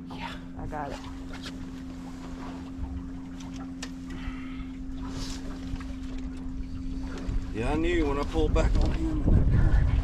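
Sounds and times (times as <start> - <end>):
boat motor hum: 0.0 - 10.0
wind rumbling on microphone: 5.0 - 10.0.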